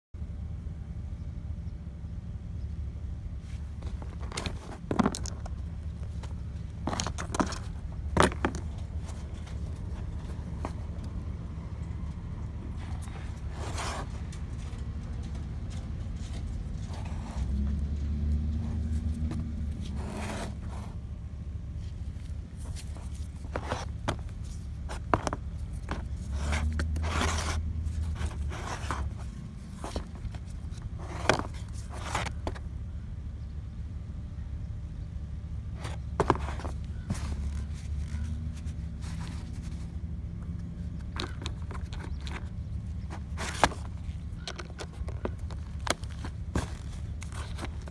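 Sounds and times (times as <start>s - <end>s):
steady low rumble: 0.2s - 47.9s
light metallic clinks and rattles: 3.8s - 11.2s, 40.4s - 47.9s
plastic part scraping on cardboard: 19.1s - 21.0s, 22.6s - 32.6s, 35.8s - 39.9s, 41.0s - 47.9s.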